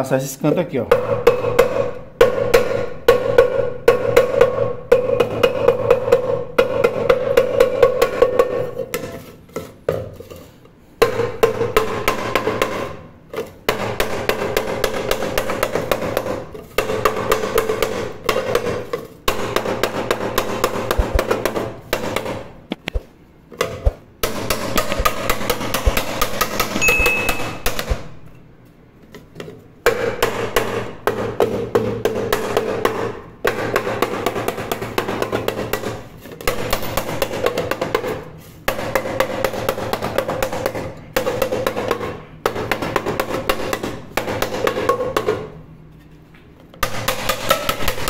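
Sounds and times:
hammer blows on wooden block: 23.8 - 28.2
metal pot ringing: 26.8 - 27.6.

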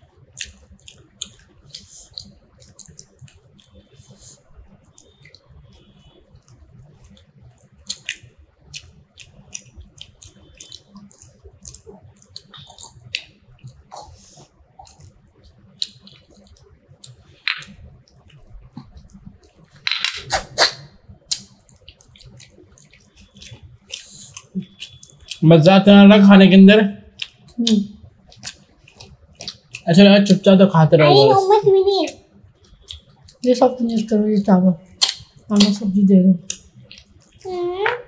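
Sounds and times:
chewing: 0.0 - 19.7, 21.2 - 25.4, 27.1 - 29.9, 32.5 - 34.1, 36.4 - 37.5
wet eating clicks: 0.2 - 4.0, 4.8 - 14.2, 14.8 - 19.7, 21.3 - 25.4, 27.1 - 30.4, 32.0 - 34.2, 34.9 - 38.0
lip smacks: 6.4 - 19.6, 35.0 - 35.8.

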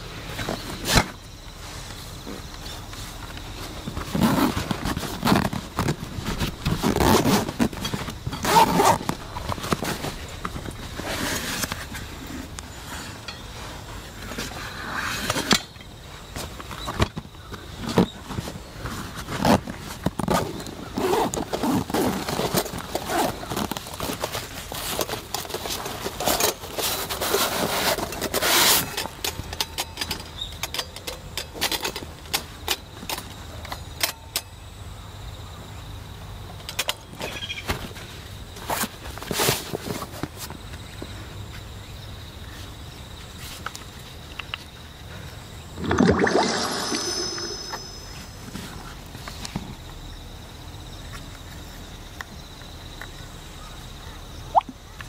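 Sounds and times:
fabric rustling: 3.0 - 12.1
zippers opening: 4.1 - 10.1
metal lanterns clicking and clinking: 27.9 - 33.3, 45.8 - 48.7.

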